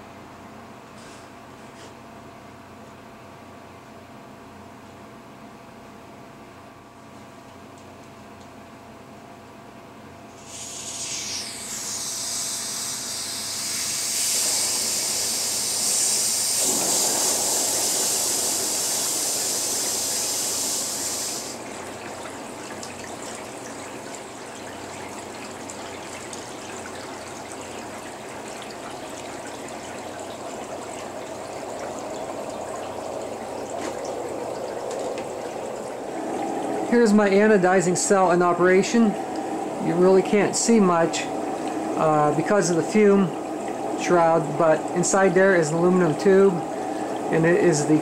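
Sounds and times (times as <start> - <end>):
liquid gushing and bubbling in tank: 10.3 - 48.0
compressed air hissing from hose: 10.4 - 21.6.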